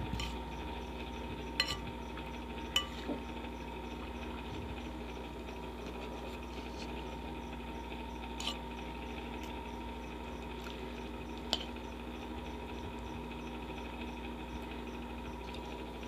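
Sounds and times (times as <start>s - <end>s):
electric fan humming: 0.0s - 16.0s
fork clinking against bowl: 1.6s - 1.9s, 2.8s - 3.1s.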